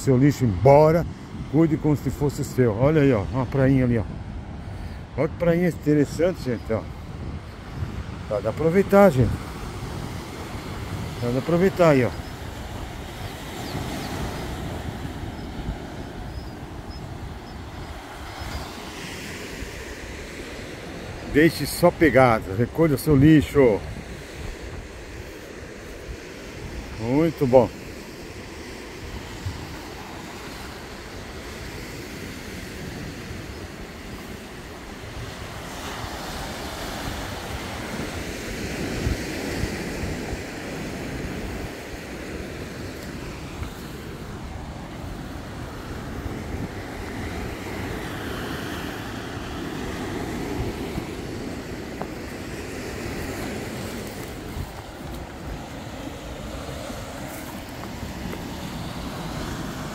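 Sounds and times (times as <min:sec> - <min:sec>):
wind buffeting microphone: 0:00.0 - 0:27.1, 0:28.4 - 0:59.9
sea surf on rocky shore: 0:00.0 - 0:59.9.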